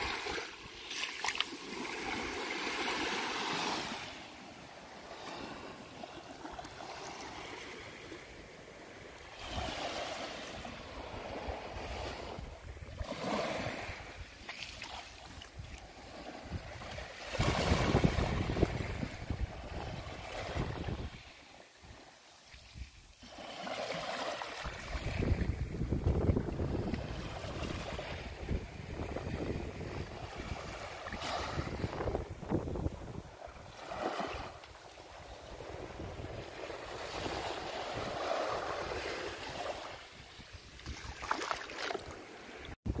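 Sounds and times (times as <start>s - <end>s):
waves washing onto sand: 0.0s - 43.0s
wind buffeting microphone: 16.4s - 21.3s, 24.6s - 34.5s, 35.2s - 41.2s, 42.8s - 43.0s.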